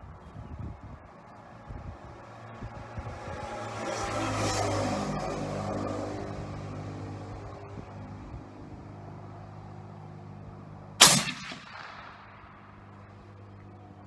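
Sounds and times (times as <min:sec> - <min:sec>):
suppressed rifle shot with echo: 0:11.0 - 0:13.0.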